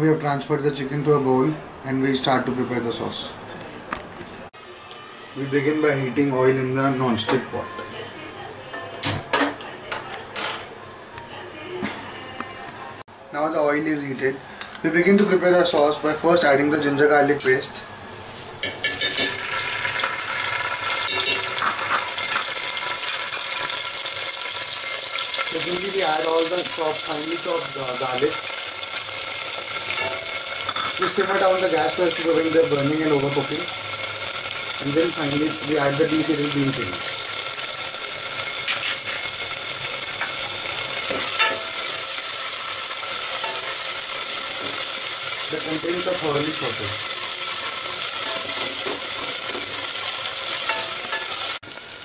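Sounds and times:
paste sizzling in hot oil: 0:17.4 - 0:52.0
spatula scraping pot: 0:37.0 - 0:42.2.

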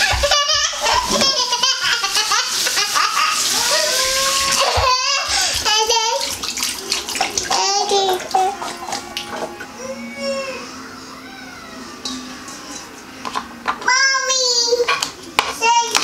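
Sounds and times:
kitchen tap running: 0:00.0 - 0:10.6
young child's voice: 0:13.8 - 0:16.0.

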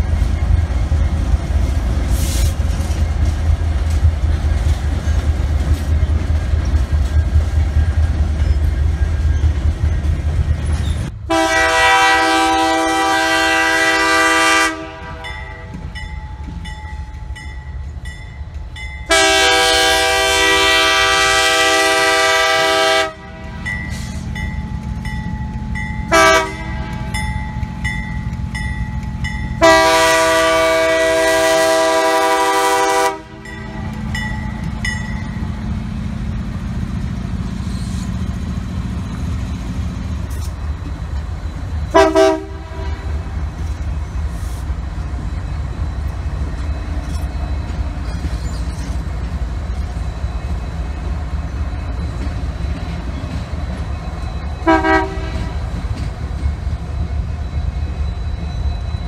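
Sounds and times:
low engine and rail rumble: 0:00.0 - 0:59.0
locomotive air horn blasts: 0:11.3 - 0:15.7, 0:19.1 - 0:23.6, 0:26.1 - 0:27.0, 0:29.6 - 0:33.9, 0:41.9 - 0:43.3, 0:54.6 - 0:55.6.

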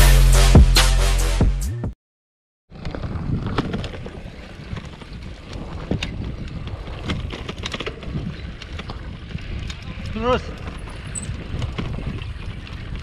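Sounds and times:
bike clicking and rattling: 0:02.7 - 0:13.0
wind rumbling on microphone: 0:02.7 - 0:13.0.

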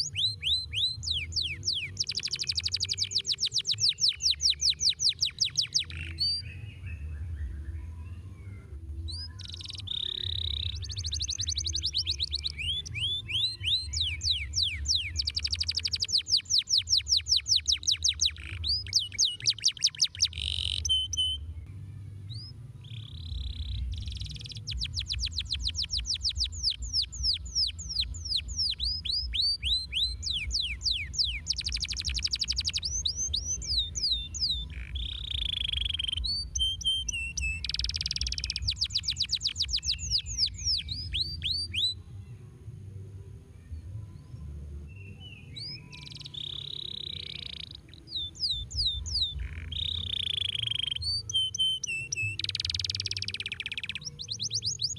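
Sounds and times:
canary singing trills: 0:00.0 - 0:21.6, 0:22.3 - 0:42.0, 0:44.9 - 0:54.9
steady low rumble: 0:21.0 - 0:38.9.

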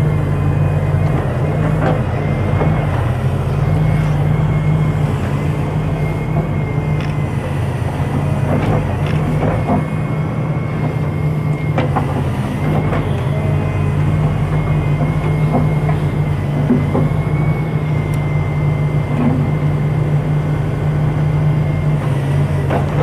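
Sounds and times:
thin high whine: 0:00.0 - 0:22.4
excavator diesel engine under load: 0:00.0 - 0:23.0.

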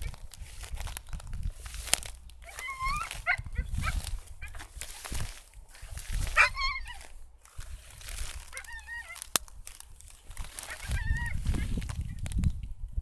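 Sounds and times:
dog whining: 0:02.4 - 0:04.0, 0:06.3 - 0:07.1, 0:08.5 - 0:09.2.

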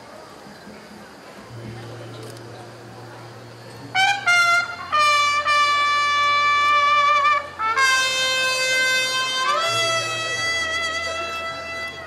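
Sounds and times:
faint low hum: 0:00.1 - 0:07.8
wind instrument playing held notes: 0:01.5 - 0:12.0.

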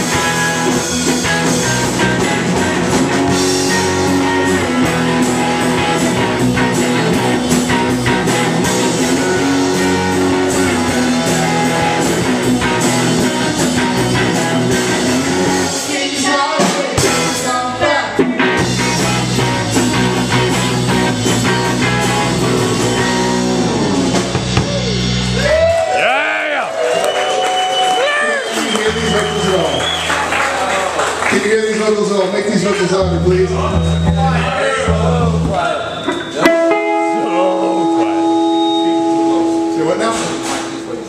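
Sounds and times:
live rock band playing: 0:00.0 - 0:41.0.

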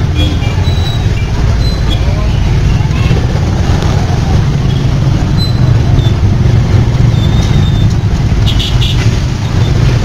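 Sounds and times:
motorbike engine rumbling: 0:00.0 - 0:10.0
street traffic: 0:00.0 - 0:10.0.

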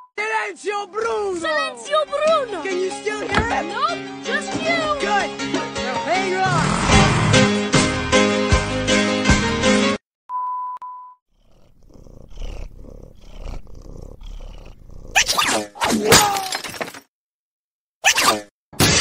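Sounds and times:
guinea pig purring: 0:11.4 - 0:15.4.

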